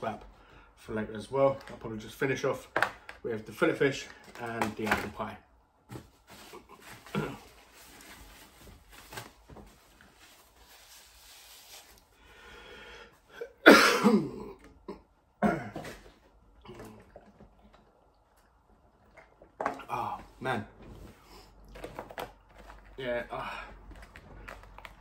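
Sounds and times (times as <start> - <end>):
cardboard packaging rustling: 5.9 - 12.2, 21.7 - 25.0
man coughing: 7.1 - 7.5, 13.4 - 16.0.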